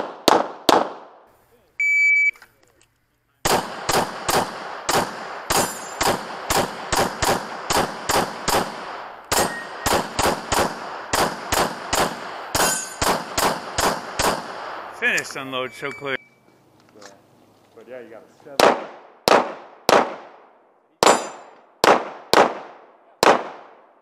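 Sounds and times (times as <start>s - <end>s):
rapid pistol shots: 0.0s - 1.2s, 3.4s - 15.0s, 18.6s - 23.9s.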